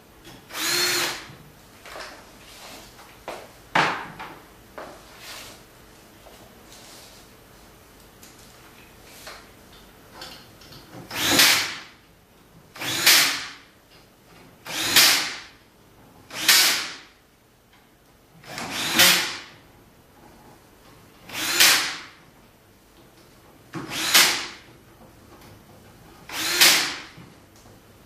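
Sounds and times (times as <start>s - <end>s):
power drill bursts: 0.5s - 1.3s, 11.1s - 11.8s, 12.8s - 13.5s, 14.6s - 15.4s, 16.3s - 16.9s, 18.5s - 19.4s, 21.3s - 22.0s, 23.9s - 24.6s, 26.3s - 27.1s.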